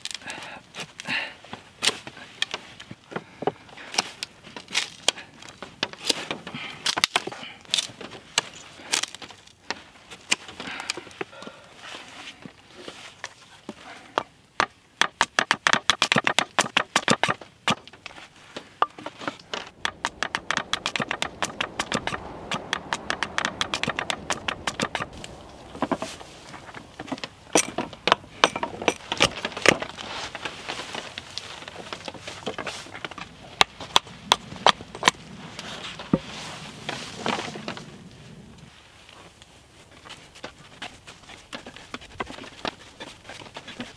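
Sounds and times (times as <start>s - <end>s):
wooden slats clacking: 14.6s - 18.1s.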